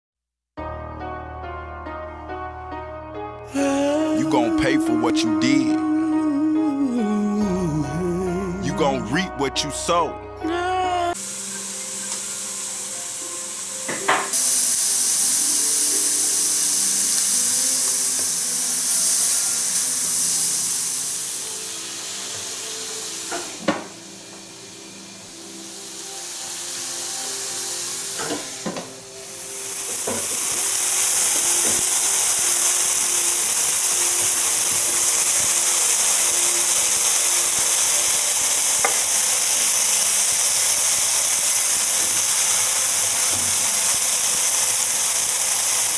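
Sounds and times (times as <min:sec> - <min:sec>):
sausages sizzling in skillet: 0:11.1 - 0:45.9.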